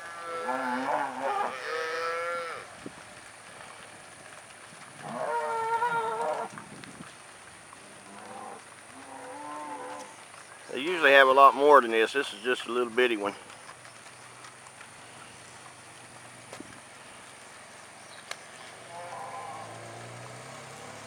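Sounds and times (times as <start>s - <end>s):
cattle mooing: 0.0s - 2.7s, 5.0s - 6.5s, 8.0s - 10.2s, 18.7s - 20.4s.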